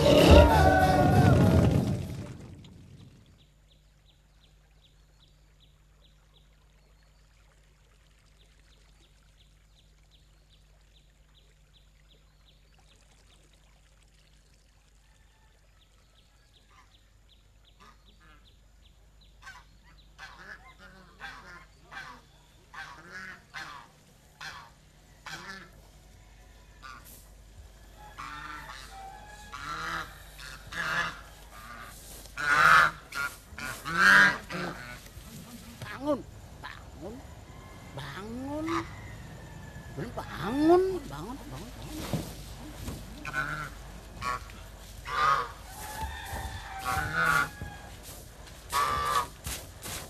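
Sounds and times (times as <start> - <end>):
geese honking: 0.0 - 1.6, 19.4 - 25.8, 28.0 - 50.0.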